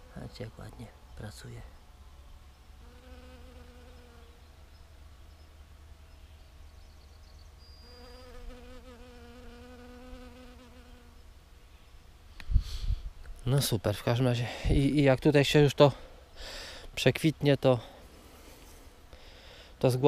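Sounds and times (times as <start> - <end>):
bee buzzing in flight: 2.8 - 4.4, 7.9 - 11.2.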